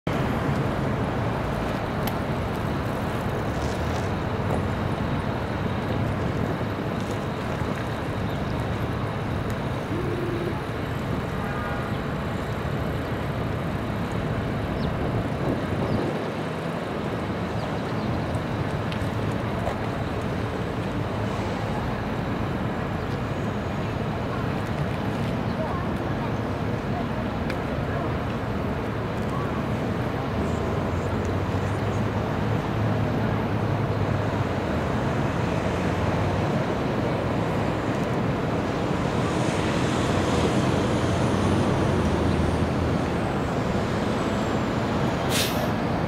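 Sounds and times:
city street traffic: 0.0 - 46.0
bus diesel engine running: 32.6 - 46.0.

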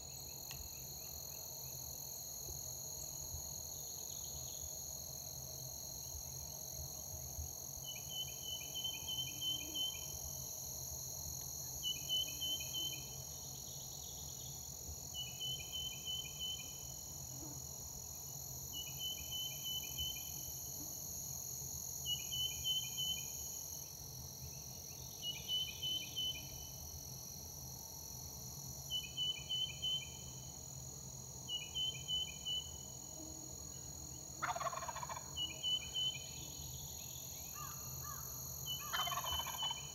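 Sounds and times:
high-pitched insect hum: 0.0 - 39.9
turkey gobbling: 34.4 - 35.2, 38.9 - 39.8.

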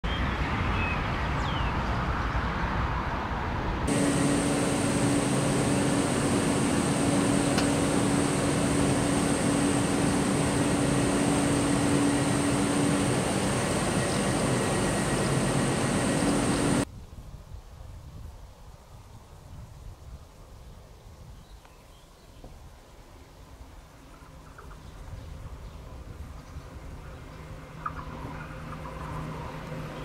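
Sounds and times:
dull even rumble: 3.9 - 16.9
electric train equipment humming: 3.9 - 16.9
high whine: 3.9 - 16.9.

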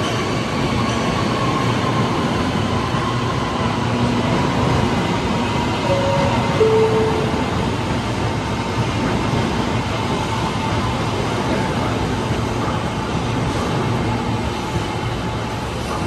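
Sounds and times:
train wheels on rails: 0.0 - 16.0
brief tone: 5.9 - 8.0.

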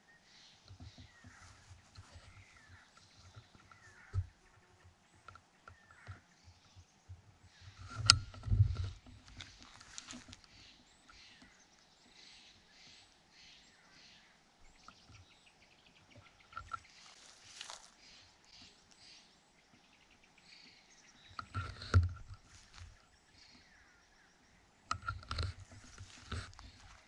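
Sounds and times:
rustling of dry forest litter: 0.3 - 4.6, 7.5 - 14.3, 16.6 - 19.6, 20.5 - 24.3, 25.0 - 27.0.

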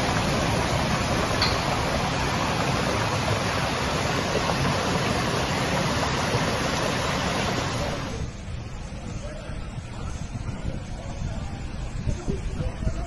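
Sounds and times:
heavy rain downpour: 0.0 - 8.2
floodwater rushing: 0.0 - 8.3.

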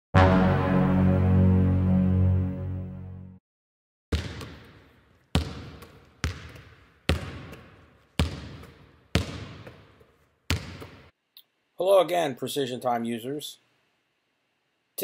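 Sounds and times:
basketball bouncing on court floor: 4.1 - 11.1.

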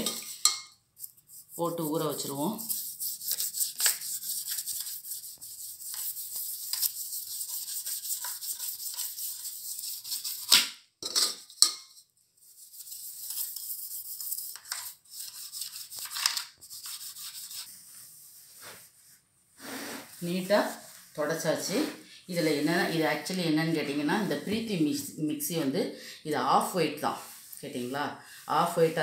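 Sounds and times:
toothbrush scrubbing plastic: 0.0 - 10.6, 12.4 - 18.0.

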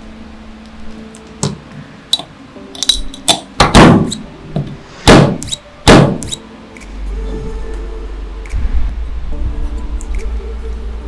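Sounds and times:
metal parts clinking and knocking: 2.8 - 3.5.

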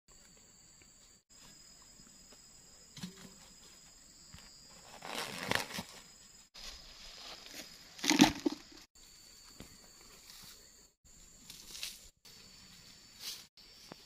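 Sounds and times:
plastic sack rustling and crinkling: 4.8 - 6.0.

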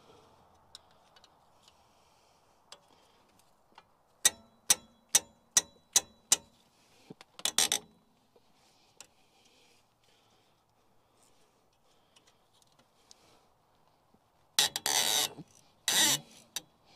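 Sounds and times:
ratchet wrench clicking: 15.9 - 16.3.

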